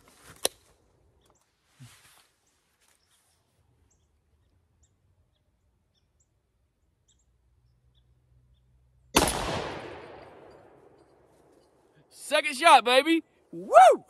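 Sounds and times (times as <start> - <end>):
pistol shot with echo: 9.2 - 10.8.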